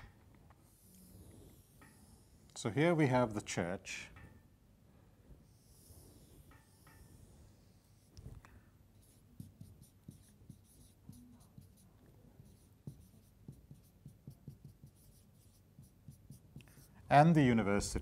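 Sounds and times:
marker scratching on whiteboard: 0.7 - 2.3, 5.4 - 8.2, 9.0 - 17.1.

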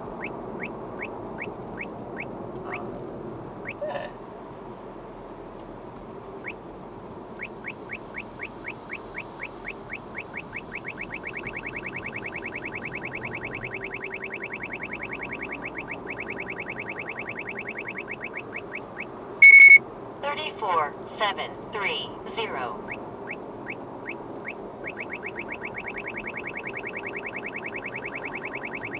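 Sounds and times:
road noise: 0.0 - 28.9
radar detector chirps: 7.4 - 19.8, 22.9 - 28.9
loud beep: 19.4 - 19.8.

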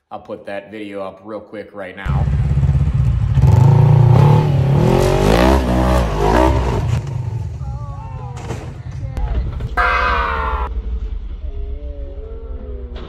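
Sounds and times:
engine revving hard: 2.2 - 7.1.

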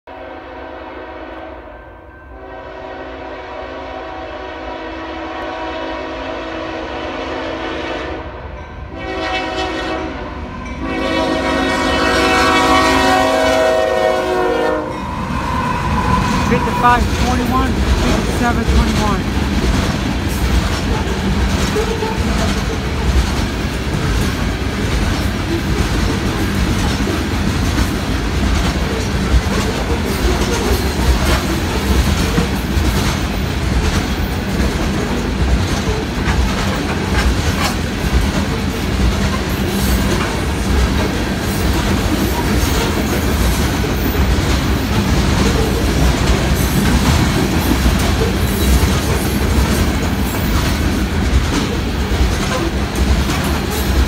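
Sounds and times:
train wheels rumbling on rails: 8.8 - 54.0
wheels clacking over rail joints: 16.2 - 54.0.

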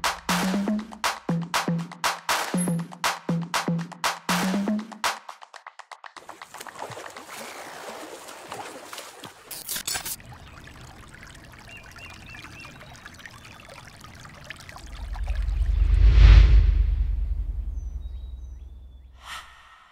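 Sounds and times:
pool water splashing and trickling: 4.4 - 15.8
deep rumbling whoosh: 14.8 - 19.2.

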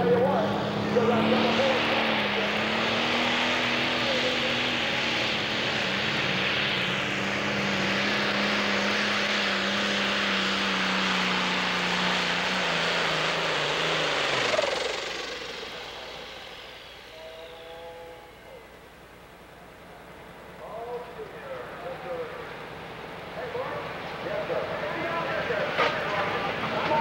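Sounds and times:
tractor diesel engine under load: 0.0 - 27.0.

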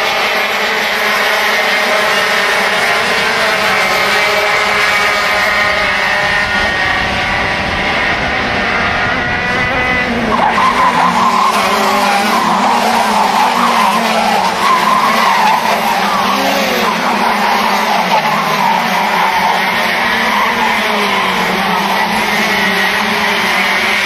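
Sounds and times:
kart engines revving: 0.0 - 24.0
wavering engine note: 0.0 - 24.0.

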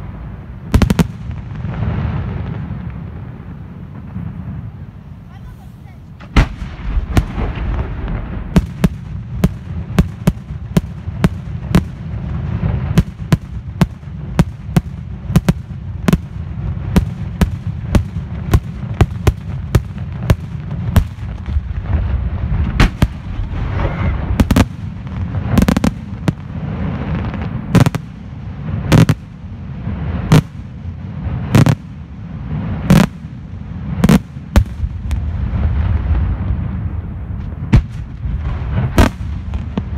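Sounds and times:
fireworks bursting: 0.0 - 39.9
low rumble of fireworks: 0.0 - 39.9.

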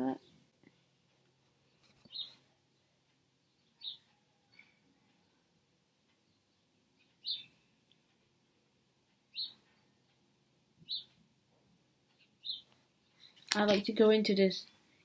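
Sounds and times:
bird chirping: 1.6 - 5.5, 6.1 - 8.0, 9.2 - 10.2, 10.8 - 13.5.

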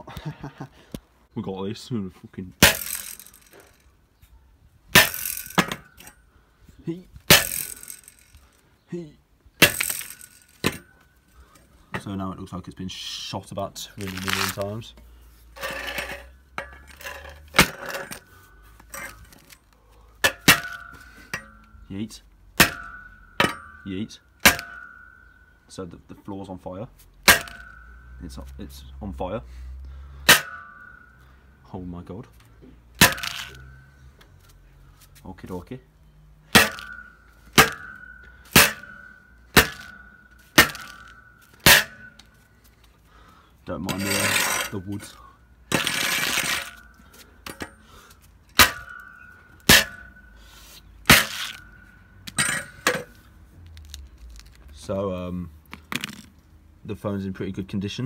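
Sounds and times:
metal rake striking a phone: 2.6 - 3.8, 5.0 - 6.2, 7.3 - 8.4, 9.6 - 11.1, 22.6 - 25.6, 27.2 - 28.4, 30.2 - 31.2, 33.0 - 34.0, 36.5 - 42.5, 43.9 - 54.5
metal rake scraping on concrete: 14.0 - 14.8, 15.4 - 19.5, 43.7 - 54.0
loud metallic clank: 27.2 - 28.4, 30.2 - 31.4, 36.5 - 42.4, 48.5 - 53.2.

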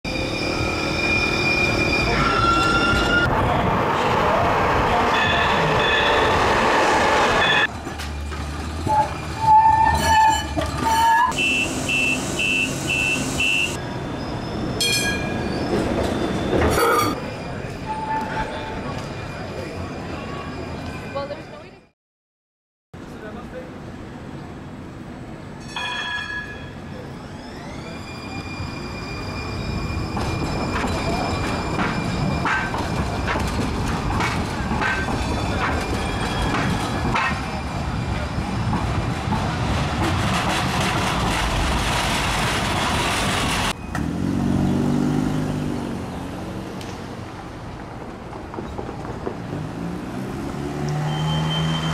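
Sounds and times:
train wheel squeal: 0.1 - 3.3, 7.2 - 7.7, 8.8 - 21.6, 25.6 - 38.9, 51.0 - 51.9
streetcar rumble: 0.1 - 21.9, 23.0 - 51.9
train running noise: 24.6 - 44.1, 46.7 - 50.6
streetcar electric whine: 26.8 - 51.9.

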